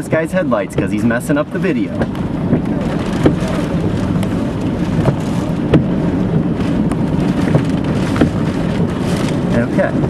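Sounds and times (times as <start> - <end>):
heavy rain beating on vehicle: 0.0 - 10.0
vehicle road noise: 0.0 - 10.0
sharp knocks: 5.0 - 6.0.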